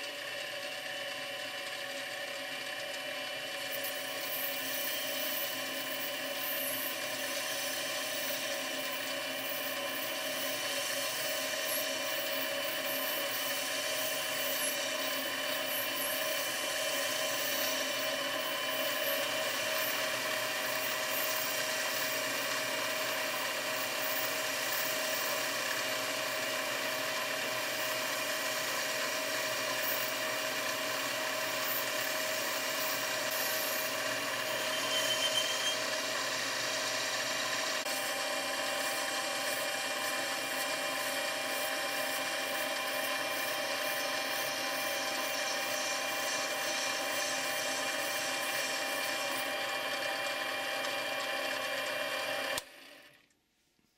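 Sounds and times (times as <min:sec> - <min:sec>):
lathe motor and gears whining: 0:00.0 - 0:53.3
boring bar cutting plastic pipe: 0:28.2 - 0:52.8
short high tone: 0:34.6 - 0:35.8.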